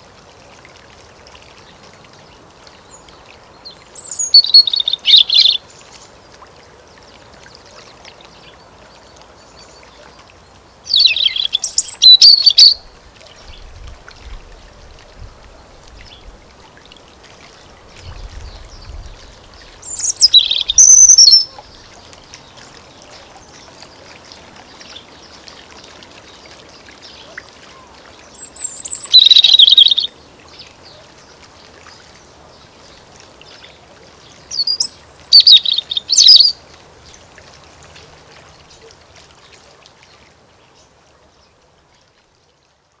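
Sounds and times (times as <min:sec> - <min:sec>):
robin singing: 0:02.8 - 0:06.1, 0:10.9 - 0:12.9, 0:18.5 - 0:25.5, 0:26.8 - 0:31.0, 0:34.4 - 0:37.2.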